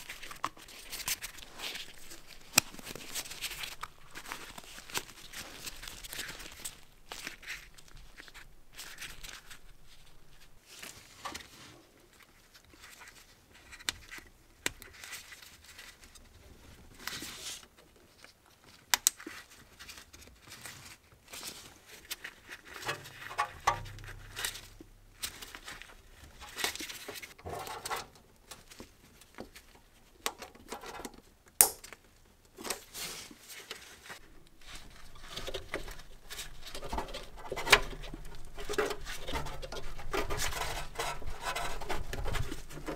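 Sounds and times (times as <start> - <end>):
gloved hands rustling plastic: 0.0 - 42.9.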